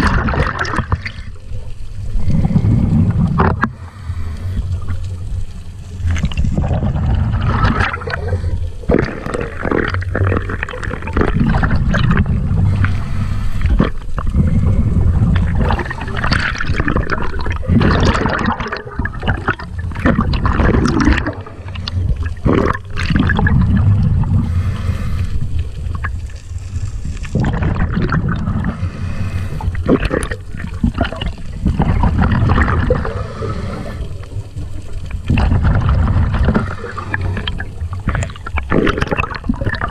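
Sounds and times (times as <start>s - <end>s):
water rushing and gurgling: 0.0s - 39.9s
low rumble: 1.2s - 18.1s, 19.1s - 38.4s
splashy water surges: 6.0s - 39.9s.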